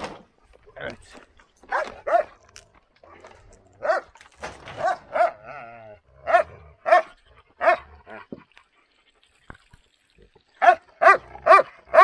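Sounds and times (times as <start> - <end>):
dog barking: 1.7 - 2.3, 3.8 - 4.1, 4.8 - 5.4, 6.2 - 7.8, 10.6 - 12.0.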